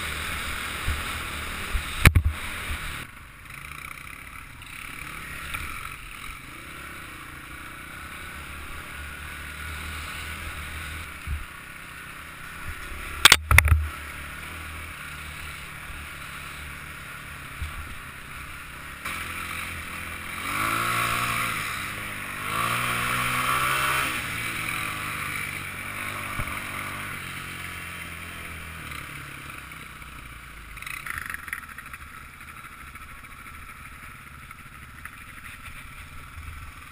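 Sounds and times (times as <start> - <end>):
motorbike engine revving: 0.0 - 36.9.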